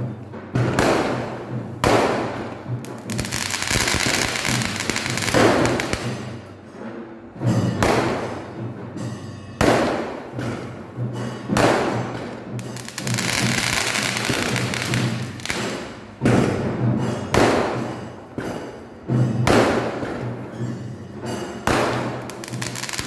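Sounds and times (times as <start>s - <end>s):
firework bangs: 0.0s - 6.6s, 7.6s - 8.5s, 9.6s - 18.1s, 21.6s - 23.0s
hissing firework crackle: 2.9s - 6.2s, 12.8s - 15.9s.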